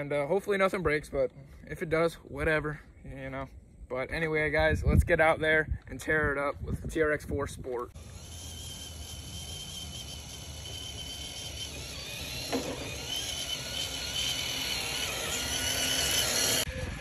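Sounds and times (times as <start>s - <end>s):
toy car motor and gears whining: 7.9s - 17.0s.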